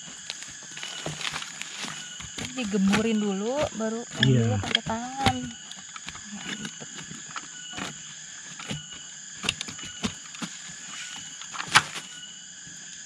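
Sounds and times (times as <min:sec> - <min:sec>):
insects buzzing: 0:00.0 - 0:13.0
shovel digging into earth: 0:00.3 - 0:07.1.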